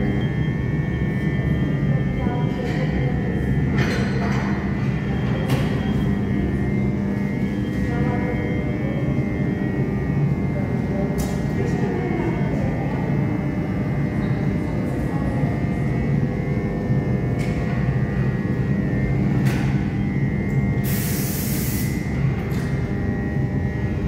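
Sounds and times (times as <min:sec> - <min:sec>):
machinery rumbling: 0:00.0 - 0:20.9.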